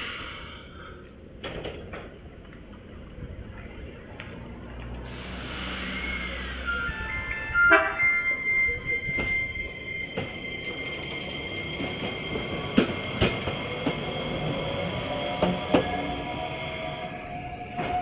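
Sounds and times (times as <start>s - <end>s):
tram wheels squealing: 4.9s - 18.0s
wheels clacking over rail joints: 10.1s - 14.6s.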